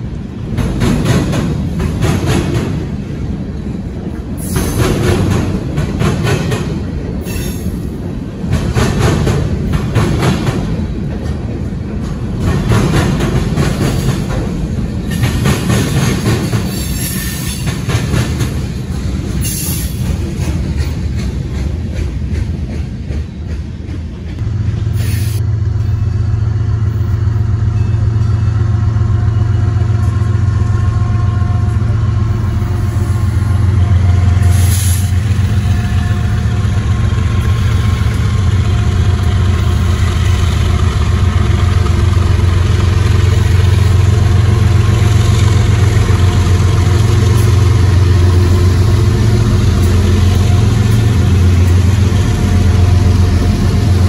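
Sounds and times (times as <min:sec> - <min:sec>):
diesel locomotive engines droning: 0:00.0 - 0:54.0
train wheels clattering over rail joints: 0:00.2 - 0:26.0, 0:31.6 - 0:54.0.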